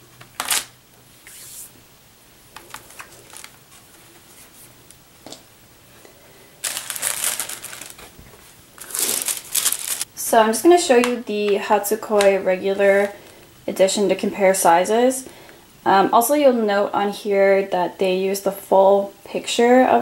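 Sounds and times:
plastic sleeve rustling and crinkling: 0.2s - 1.7s, 2.5s - 5.4s, 6.6s - 10.1s, 10.9s - 13.5s.

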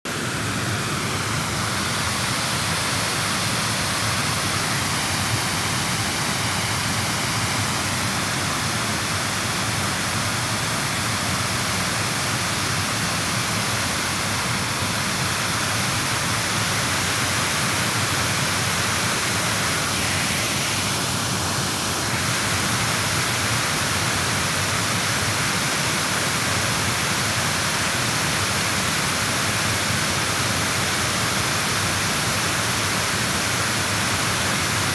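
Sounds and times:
river water rushing: 0.1s - 34.9s.

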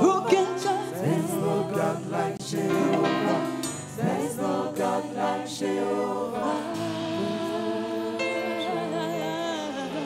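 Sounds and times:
band playing gospel music: 0.0s - 10.0s
choir singing: 0.0s - 10.0s
woman lead singer: 4.0s - 10.0s.

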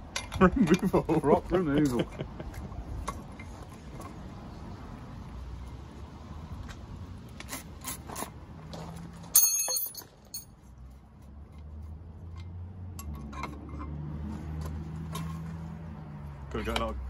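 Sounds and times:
metal clink and ring: 9.3s - 10.6s.

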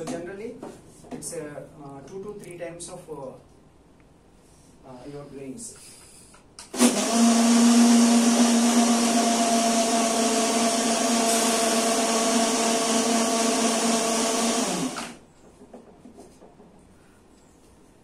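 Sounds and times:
electric blender grinding: 6.7s - 15.2s.

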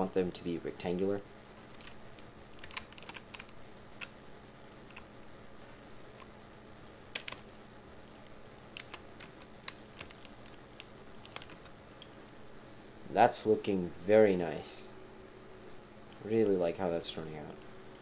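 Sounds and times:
faint steady hum: 0.0s - 18.0s
keyboard keys clicking: 1.6s - 5.1s, 5.9s - 11.8s.

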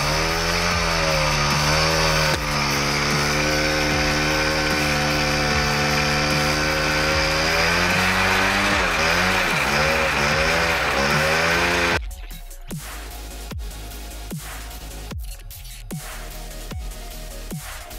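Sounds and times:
pressure washer pump: 0.0s - 12.0s
two-stroke scooter engine running: 0.0s - 12.0s.

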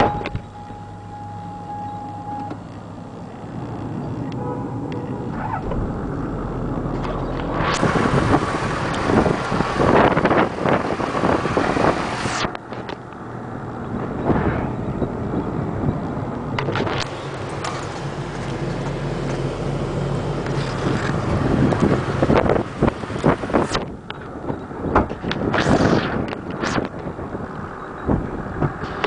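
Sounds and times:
diesel engine idling: 0.0s - 12.2s, 13.0s - 24.5s
wind noise on microphone: 5.0s - 17.2s, 20.6s - 29.0s.

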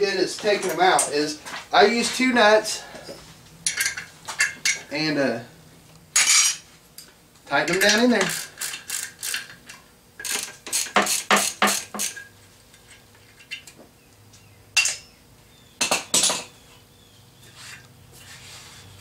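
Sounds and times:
wrench clinking on metal nuts: 7.6s - 12.3s.

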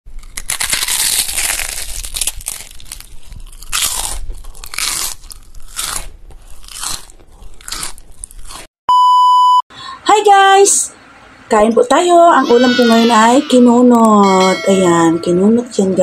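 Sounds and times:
crunchy food being chewed: 0.1s - 8.7s.

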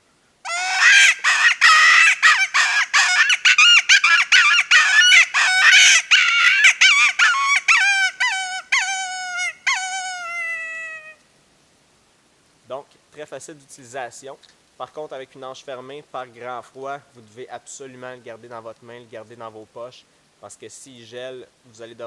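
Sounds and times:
predator call imitating hare cries: 0.4s - 11.2s.

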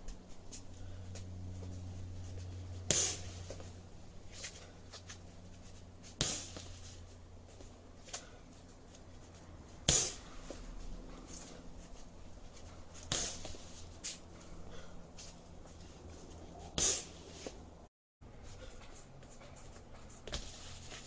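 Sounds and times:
kicks smacking a punching ball: 6.1s - 6.7s, 9.8s - 10.2s, 13.0s - 13.6s.

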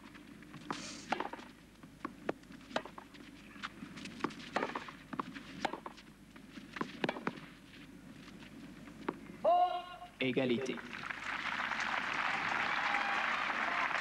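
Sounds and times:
racket striking tennis ball: 1.1s - 1.5s, 2.2s - 3.1s, 4.2s - 6.0s, 6.8s - 7.5s.

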